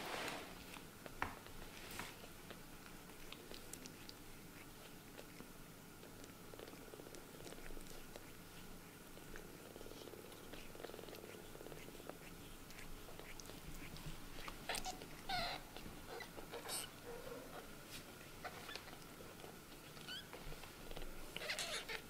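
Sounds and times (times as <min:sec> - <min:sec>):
kittens mewing: 0:10.5 - 0:17.7, 0:21.3 - 0:22.0.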